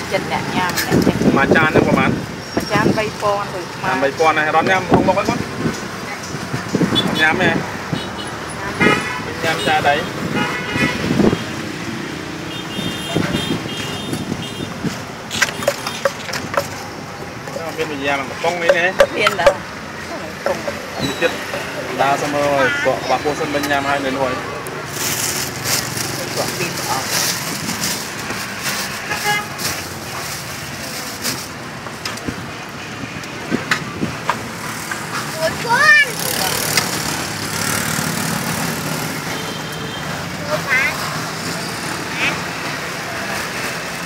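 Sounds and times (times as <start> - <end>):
street traffic: 0.0 - 44.0
vehicle horn toot: 8.0 - 11.4, 12.5 - 14.8, 22.3 - 23.5, 29.1 - 29.6
wooden pestle knocking in mortar: 15.4 - 16.8, 18.6 - 19.7.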